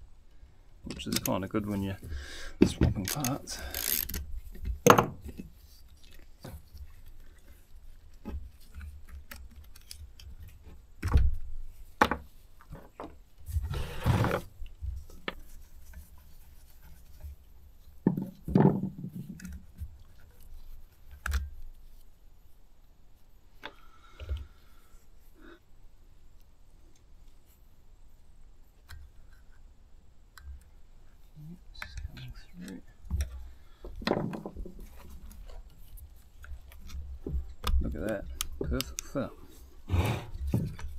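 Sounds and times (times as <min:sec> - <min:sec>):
tools clicking and knocking on wood: 0:00.9 - 0:01.4, 0:02.6 - 0:13.3, 0:18.0 - 0:20.5, 0:31.8 - 0:39.2, 0:40.3 - 0:40.9
scraping rustle: 0:11.5 - 0:18.0.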